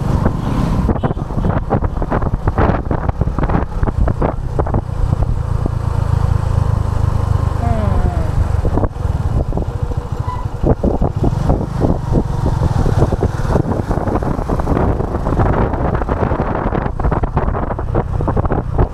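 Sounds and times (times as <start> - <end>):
wind buffeting microphone: 0.0 - 6.7, 7.8 - 18.9
motorcycle engine running: 1.0 - 18.9.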